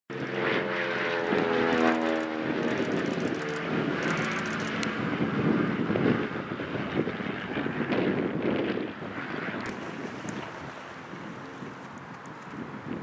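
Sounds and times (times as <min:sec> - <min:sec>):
propeller plane passing overhead: 0:00.1 - 0:13.0.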